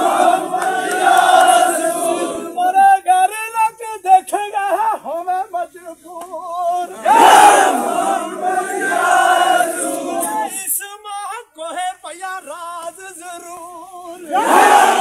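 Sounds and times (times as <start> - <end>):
crowd of men chanting: 0.0 - 2.8, 5.6 - 10.8, 13.4 - 15.0
man singing: 2.5 - 7.0, 10.4 - 14.4.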